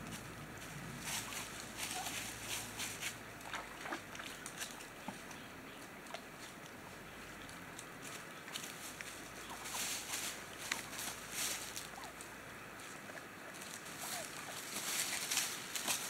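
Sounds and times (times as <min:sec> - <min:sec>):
turkeys rustling and pecking: 0:00.0 - 0:16.0
wind in leaves: 0:00.0 - 0:16.0
turkey calls: 0:01.1 - 0:02.7, 0:08.2 - 0:12.9, 0:13.9 - 0:16.0.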